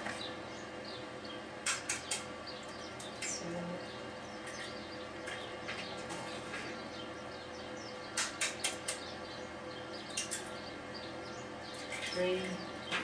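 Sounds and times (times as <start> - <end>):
faint steady hum: 0.0 - 13.0
egg cracking clicks: 1.6 - 3.4, 8.1 - 9.0, 10.0 - 10.5.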